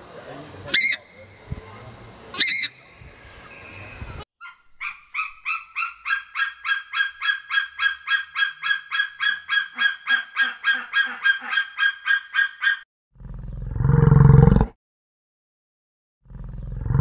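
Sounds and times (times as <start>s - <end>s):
eagle shrill piping calls: 0.7s - 1.6s, 2.3s - 12.8s
deep animal call: 4.4s - 14.7s, 16.2s - 17.0s.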